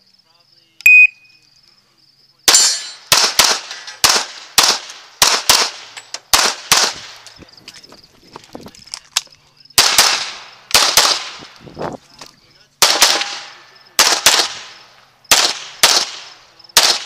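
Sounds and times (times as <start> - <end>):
pistol shots: 2.5 - 7.4, 9.8 - 11.6, 12.8 - 17.0.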